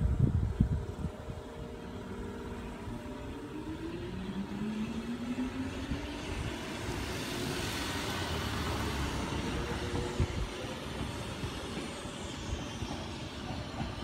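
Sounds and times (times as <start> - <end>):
rising whine of vehicle accelerating: 0.0 - 10.9.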